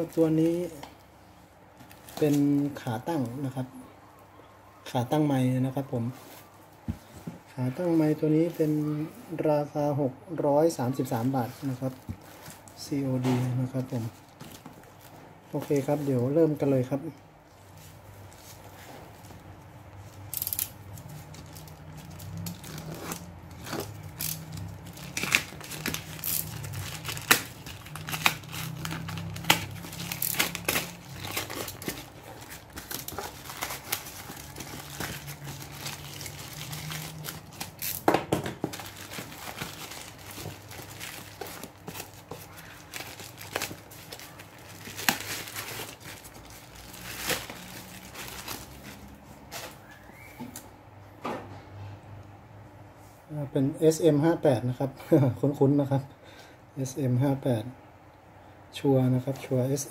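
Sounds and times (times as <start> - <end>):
plastic mailer bag crinkling and tearing: 20.4 - 49.8.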